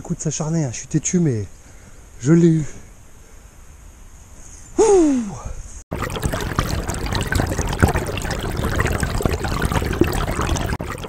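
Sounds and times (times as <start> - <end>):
water splashing and trickling: 5.9 - 11.0.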